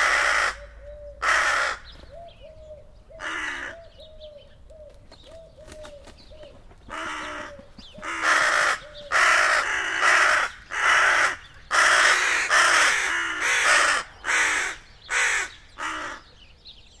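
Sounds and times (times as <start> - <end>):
crow cawing harshly: 0.0 - 1.9, 3.2 - 3.8, 6.9 - 16.3.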